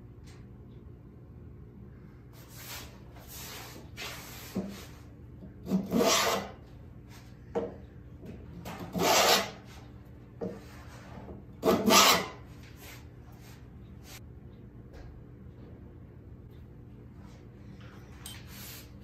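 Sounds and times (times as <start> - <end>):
hand tool cutting wood: 5.7 - 6.5, 8.8 - 9.6, 11.6 - 12.4.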